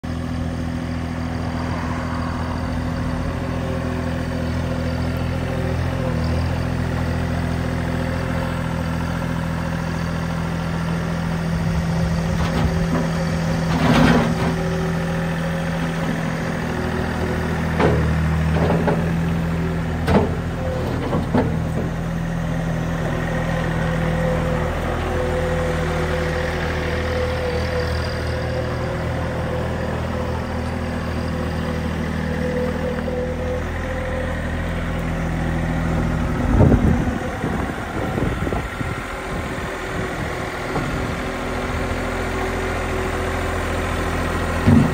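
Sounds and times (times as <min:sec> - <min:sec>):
diesel engine running: 0:00.0 - 0:44.9
metal clanks and knocks: 0:44.6 - 0:44.9.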